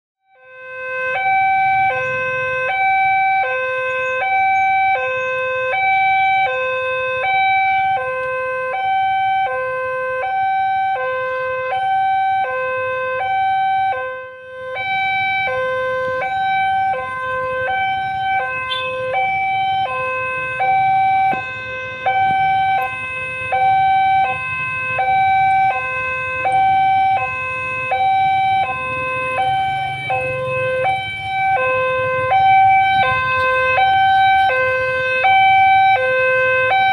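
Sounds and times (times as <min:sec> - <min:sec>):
faint traffic hum: 0:00.7 - 0:36.9.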